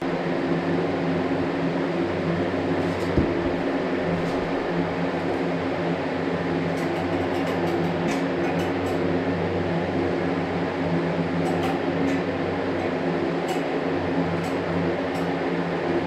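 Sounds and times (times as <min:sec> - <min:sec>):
short knock: 0:03.1 - 0:03.6.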